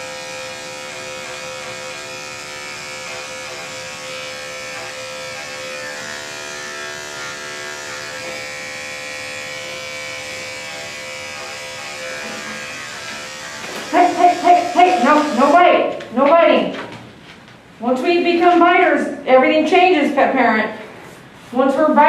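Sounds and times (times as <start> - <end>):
electric clipper buzzing: 0.0 - 16.1.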